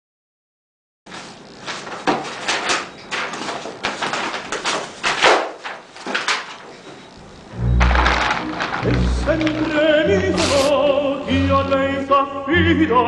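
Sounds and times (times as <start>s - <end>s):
pages flipping: 1.1s - 11.0s.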